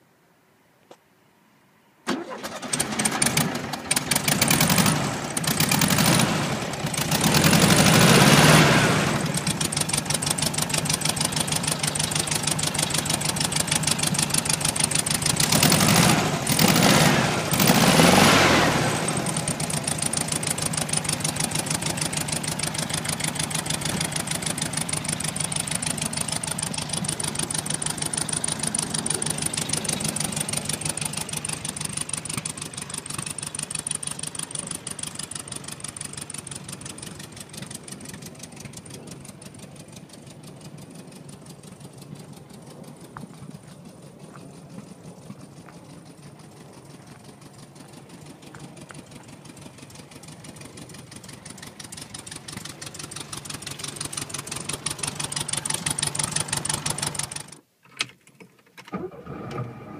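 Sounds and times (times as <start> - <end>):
car engine starting and revving: 2.1 - 57.6, 58.9 - 59.9
car engine idling: 2.1 - 57.7.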